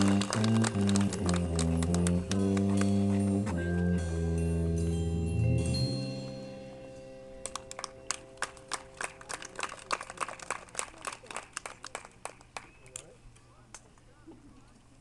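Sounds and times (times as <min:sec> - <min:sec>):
audience clapping: 0:00.0 - 0:03.0, 0:07.4 - 0:13.1
marching band chord: 0:00.0 - 0:09.2.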